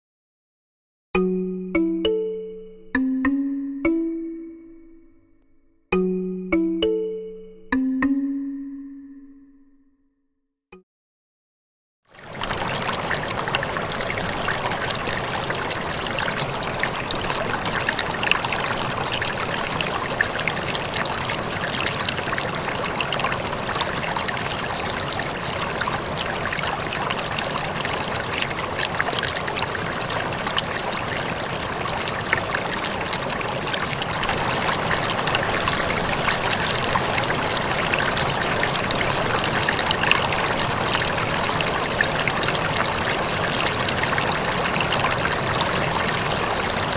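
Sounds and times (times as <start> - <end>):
aquarium water trickling: 12.1 - 46.9.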